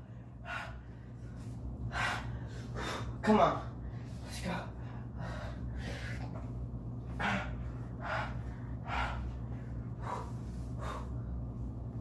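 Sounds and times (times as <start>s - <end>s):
man breathing hard through mouth: 7.1s - 11.4s.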